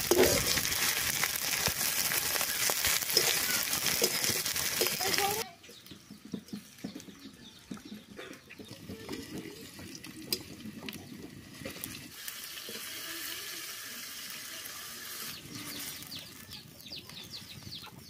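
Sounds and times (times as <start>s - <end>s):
liquid sizzling in hot oil: 0.0s - 5.4s, 8.6s - 17.4s.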